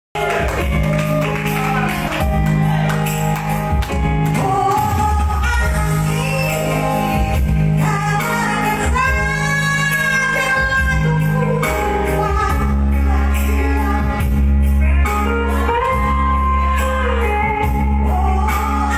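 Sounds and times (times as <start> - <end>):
electric keyboard accompaniment: 0.2 - 18.9
woman singing: 4.2 - 18.9.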